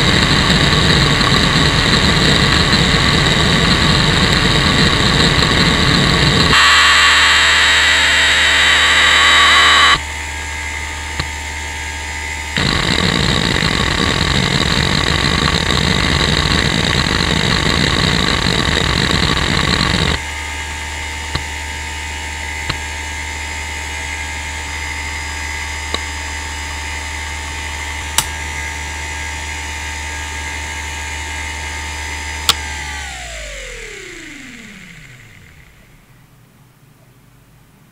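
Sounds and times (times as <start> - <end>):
hard drive spindle whine: 0.0 - 36.6
rapid hard drive seek noise: 6.6 - 10.0.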